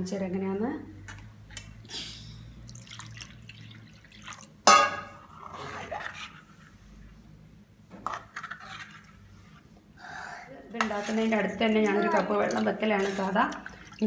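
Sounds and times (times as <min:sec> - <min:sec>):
batter dripping and trickling: 0:02.6 - 0:04.6.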